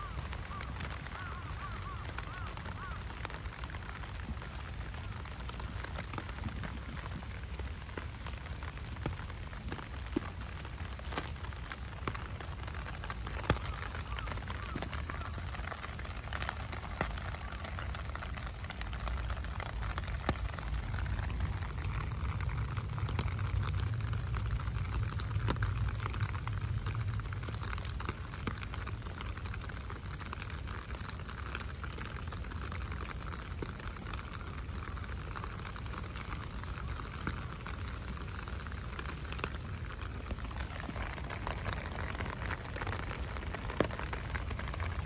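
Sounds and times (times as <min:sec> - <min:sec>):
heavy rain falling: 0:00.0 - 0:45.0.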